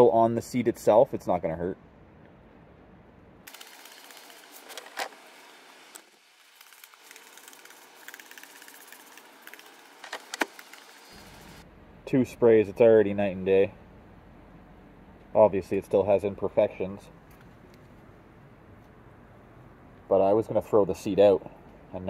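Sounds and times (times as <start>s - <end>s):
spray bottle squirting: 6.0s - 11.6s.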